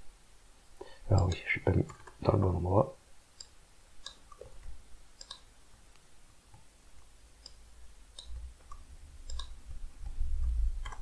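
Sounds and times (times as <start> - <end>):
computer mouse clicks: 3.4 - 5.5, 7.4 - 11.0.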